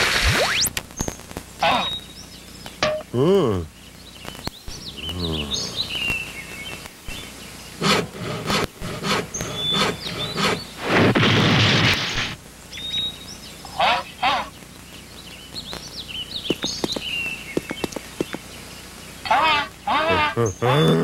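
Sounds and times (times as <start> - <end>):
birds chirping: 0.6 - 10.9, 11.9 - 21.0
caveman grunting: 3.1 - 3.7, 4.8 - 5.9, 20.0 - 21.0
alien warbling vocal sounds: 4.7 - 6.1, 19.2 - 21.0.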